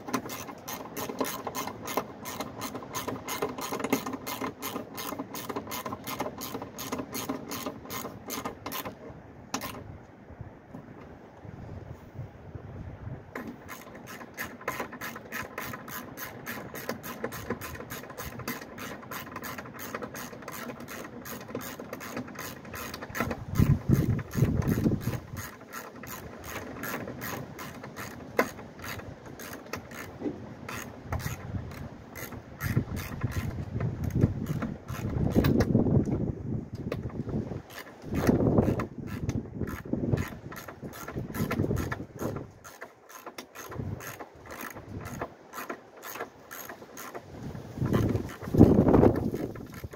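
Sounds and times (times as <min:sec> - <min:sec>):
ratchet wrench clicking: 0:13.4 - 0:30.1, 0:30.7 - 0:35.7, 0:37.7 - 0:47.2, 0:47.8 - 0:49.9.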